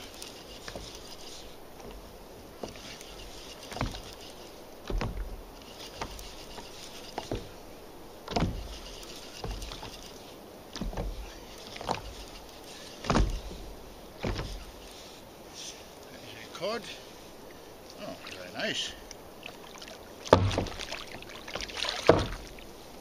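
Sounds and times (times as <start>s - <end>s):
soft hiss: 0.0s - 23.0s.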